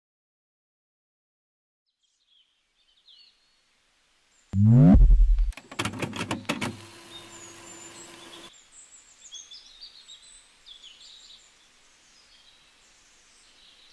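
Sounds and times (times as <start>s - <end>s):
low hum: 4.6s - 5.6s.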